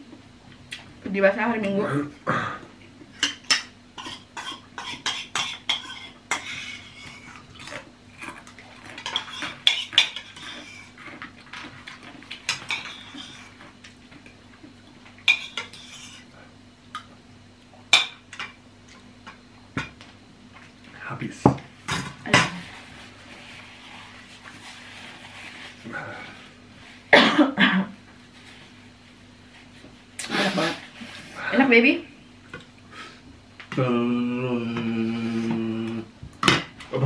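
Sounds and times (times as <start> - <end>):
cutlery clinking on bowls: 3.2 - 7.8, 8.9 - 10.7, 15.2 - 16.2.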